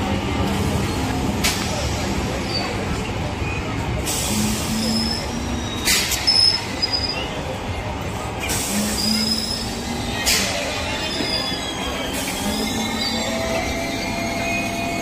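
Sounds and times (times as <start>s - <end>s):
train rumble: 0.0s - 15.0s
wheel squeals: 4.5s - 7.5s, 8.8s - 15.0s.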